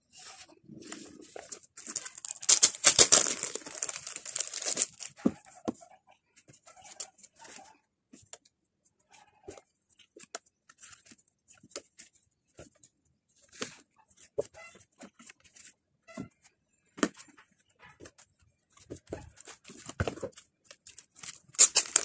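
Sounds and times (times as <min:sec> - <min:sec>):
photo prints leafed through: 0:00.1 - 0:05.5, 0:20.9 - 0:22.0
paper rustling: 0:00.2 - 0:05.3, 0:20.9 - 0:22.0.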